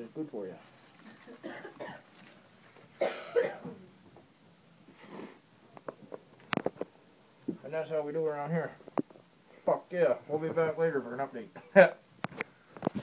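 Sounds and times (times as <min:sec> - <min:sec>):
person coughing: 0:01.4 - 0:02.0, 0:03.0 - 0:03.8.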